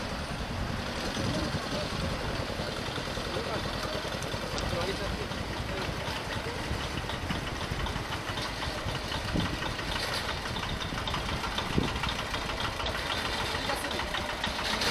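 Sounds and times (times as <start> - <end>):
small motorbike engines: 0.0 - 14.9.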